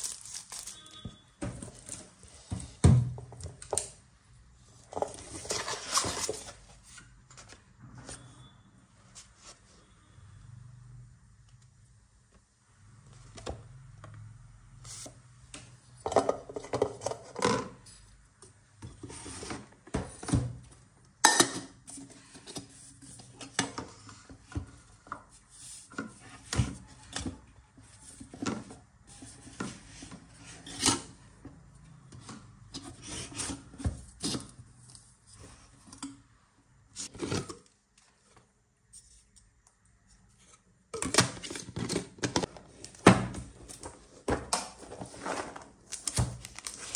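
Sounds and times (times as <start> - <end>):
packaging rustling: 0.0 - 0.9, 44.8 - 46.9.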